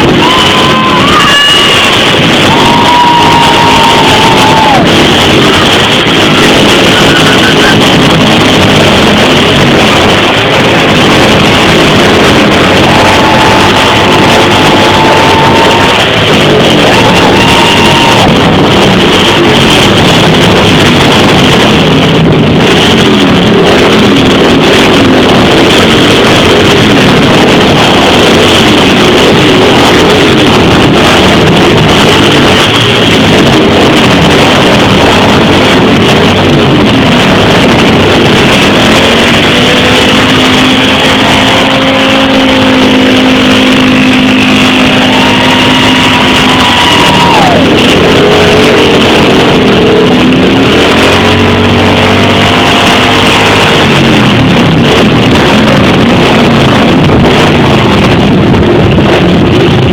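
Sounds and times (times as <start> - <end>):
motorcycle engines running: 0.0 - 59.9
long steady high tone: 38.9 - 52.7.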